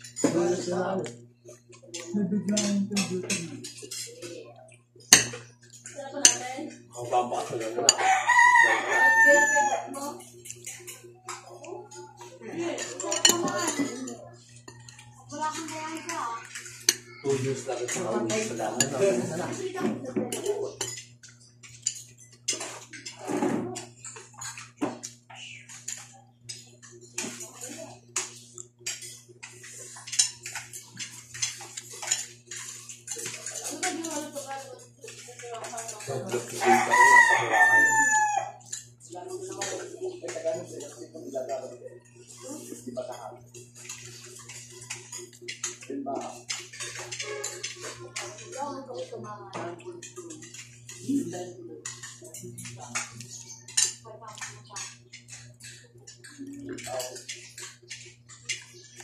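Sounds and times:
cutlery clinking on a plate: 0:01.6 - 0:04.2, 0:05.0 - 0:06.4, 0:12.2 - 0:15.0, 0:16.5 - 0:59.0
rooster crowing: 0:07.9 - 0:10.1, 0:36.5 - 0:38.7
chewing: 0:23.8 - 0:37.4, 0:42.0 - 0:49.1, 0:50.0 - 0:59.0.

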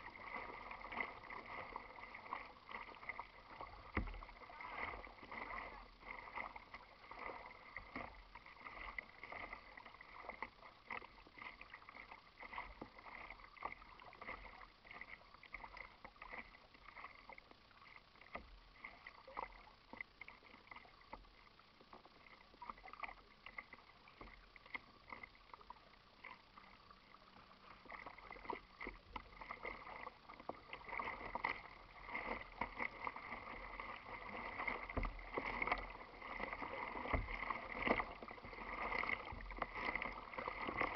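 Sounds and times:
waves lapping against kayak hull: 0:00.0 - 0:40.9.

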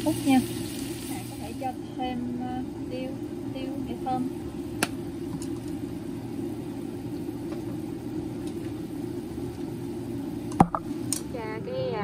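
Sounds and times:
kitchen rumbling hum: 0:00.0 - 0:12.0
pan simmering: 0:00.0 - 0:12.0.

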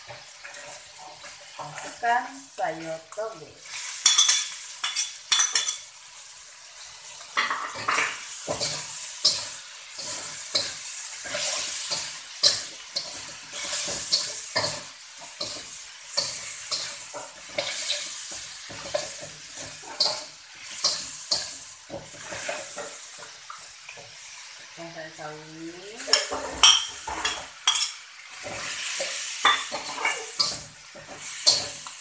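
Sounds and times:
food sizzling in a wok: 0:00.0 - 0:32.0
metal spatula scraping a wok: 0:06.8 - 0:23.1, 0:26.0 - 0:32.0.

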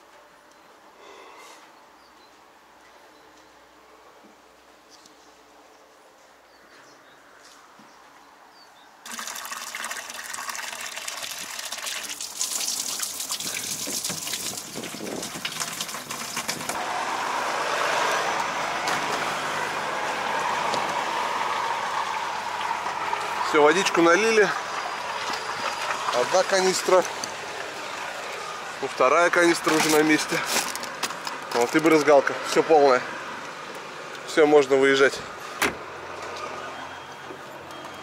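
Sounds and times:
tap water pouring into a canister: 0:09.1 - 0:16.8, 0:24.5 - 0:27.7.

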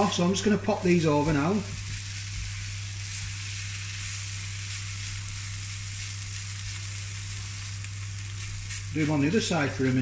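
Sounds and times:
schnitzels sizzling in oil: 0:00.0 - 0:10.0.

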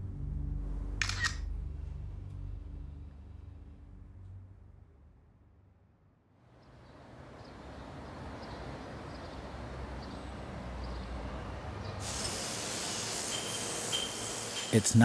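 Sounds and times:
faint low outdoor rumble: 0:00.0 - 0:07.5
power tool hissing on stone: 0:12.0 - 0:15.0.

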